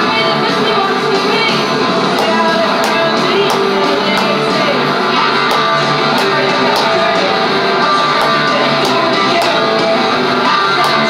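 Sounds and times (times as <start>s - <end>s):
strummed electric guitar: 0.0s - 11.0s
drum beat: 2.2s - 10.1s.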